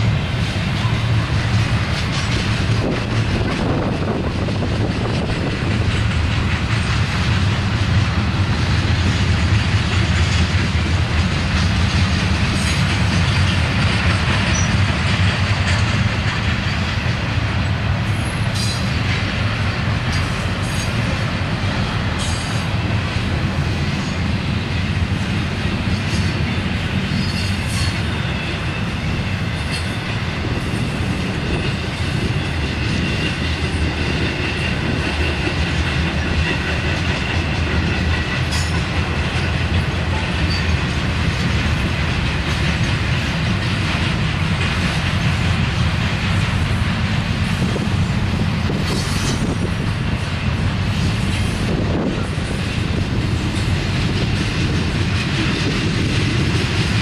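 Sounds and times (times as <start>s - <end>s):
train wheels rumbling on rails: 0.0s - 57.0s
high wheel squeal: 14.4s - 14.8s, 26.0s - 30.0s, 40.2s - 40.8s.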